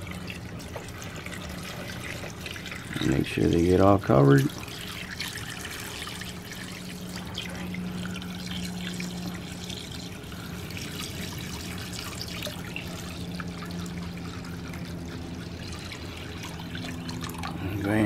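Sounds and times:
liquid pouring and splashing: 0.0s - 18.0s
steady low hum: 0.0s - 18.0s.

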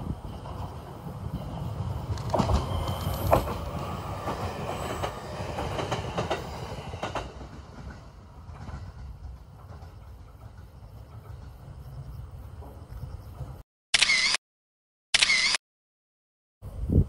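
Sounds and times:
train rumble: 0.0s - 13.6s
train wheels clacking on rails: 0.3s - 13.6s.

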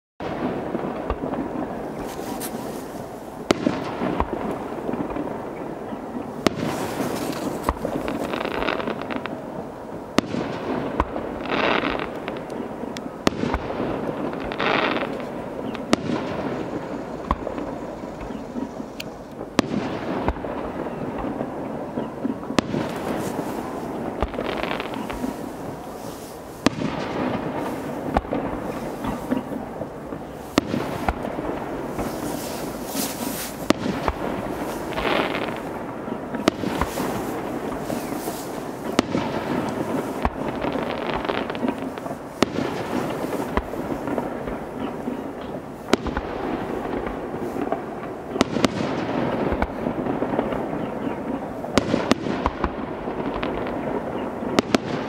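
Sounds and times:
firework hisses: 1.8s - 4.3s, 6.4s - 9.3s, 22.6s - 44.4s
firework shells bursting: 6.4s - 9.4s, 19.0s - 50.8s.

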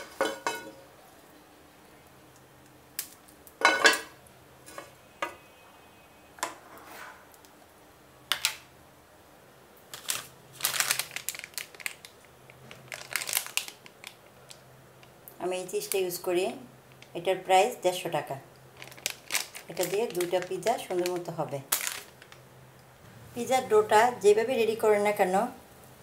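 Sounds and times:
kitchen utensils clinking: 0.0s - 0.9s, 3.6s - 5.4s.

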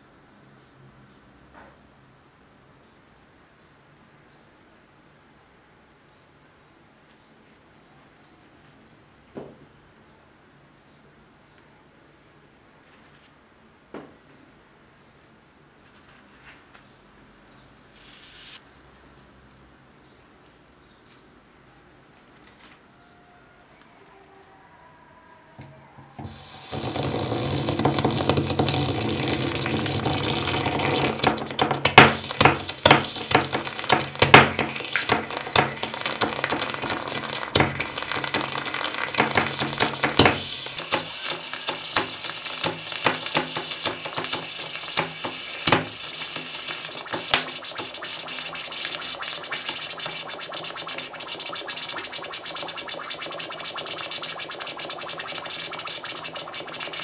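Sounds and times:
hot metal sizzling hiss: 17.9s - 19.7s, 26.2s - 27.8s, 31.1s - 57.0s
sharp crackles and pops: 17.9s - 22.7s, 26.3s - 57.0s.

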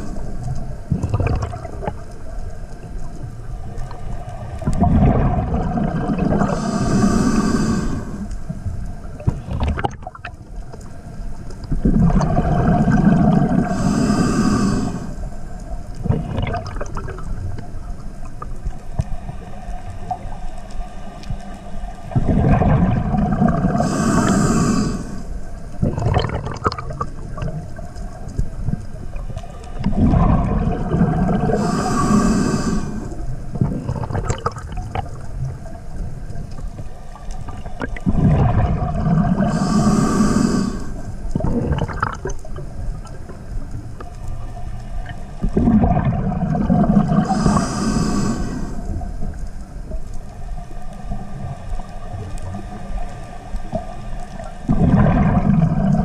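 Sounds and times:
exhaled bubbles rushing: 0.9s - 2.1s, 4.6s - 7.0s, 9.2s - 10.4s, 11.7s - 13.8s, 16.0s - 17.5s, 22.1s - 24.3s, 25.8s - 27.9s, 28.7s - 32.0s, 32.9s - 35.6s, 37.4s - 43.4s, 45.0s - 47.6s, 54.6s - 56.0s
breathing through a regulator: 6.3s - 8.5s, 13.4s - 15.5s, 23.3s - 25.5s, 31.2s - 34.2s, 39.2s - 41.9s, 46.8s - 49.1s.

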